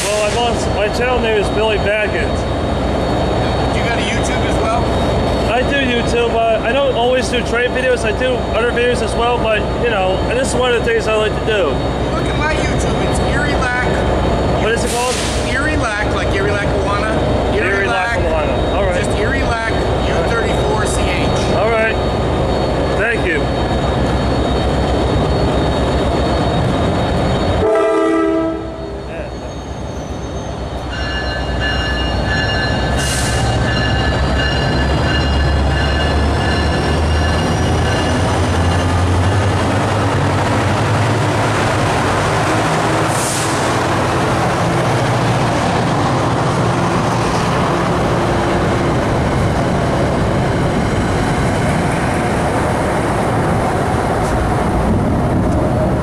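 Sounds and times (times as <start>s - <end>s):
train passing with rumble: 0.0s - 56.0s
train horn: 27.6s - 29.0s.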